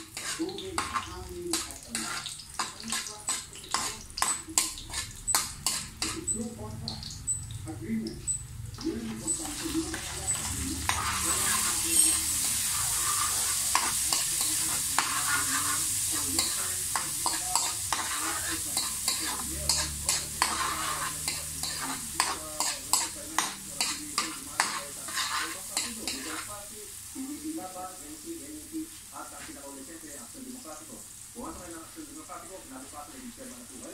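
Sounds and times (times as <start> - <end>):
spatula scraping and tapping pan: 0.0 - 7.3, 8.1 - 26.6
food sizzling in oil: 0.0 - 33.9.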